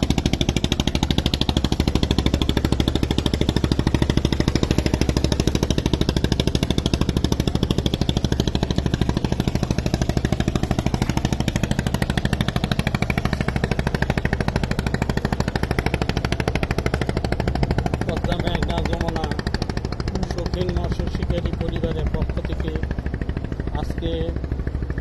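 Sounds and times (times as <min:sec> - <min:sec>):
boat diesel engine chugging: 0:00.0 - 0:25.0.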